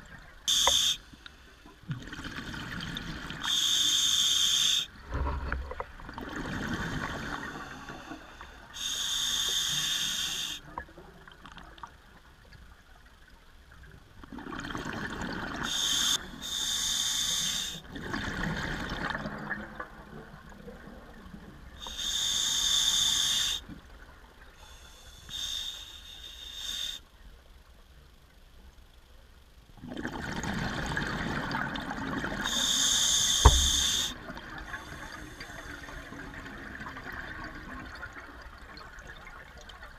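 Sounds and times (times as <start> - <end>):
regulator hissing inhalations: 0.5 - 1.4, 3.5 - 4.9, 7.4 - 10.6, 15.6 - 17.8, 21.8 - 23.6, 24.6 - 27.0, 32.5 - 34.2
sharp knock: 33.4 - 34.0.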